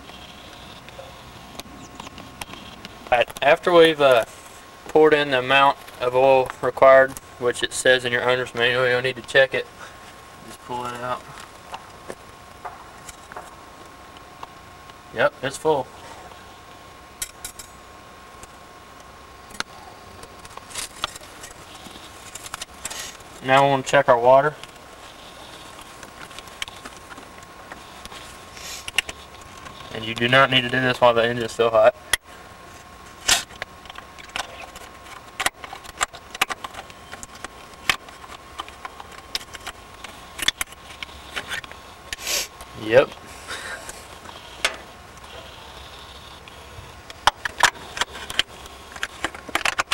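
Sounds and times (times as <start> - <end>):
faint steady hum: 0.0 - 49.9.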